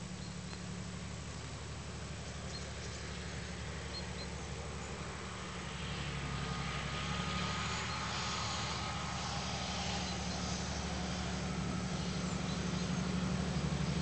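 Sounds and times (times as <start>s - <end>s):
locomotive engine hum: 0.0s - 14.0s.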